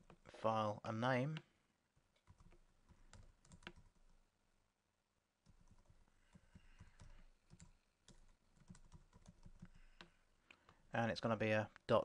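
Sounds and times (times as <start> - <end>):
typing on computer keyboard: 2.2 - 4.1, 5.5 - 10.1.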